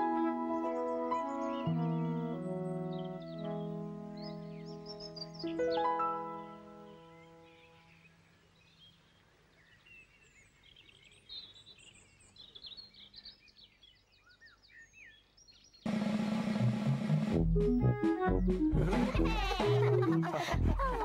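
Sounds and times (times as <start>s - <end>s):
held chord of background music: 0.0s - 5.0s
faint birdsong: 0.0s - 16.8s.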